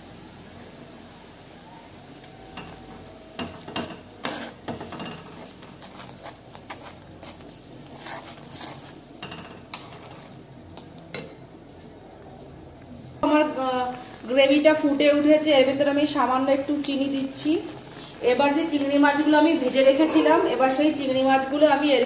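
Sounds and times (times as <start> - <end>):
bubbling gravy hiss: 0.0 - 11.6, 12.8 - 22.0
metal spatula scraping a pan: 2.4 - 10.4.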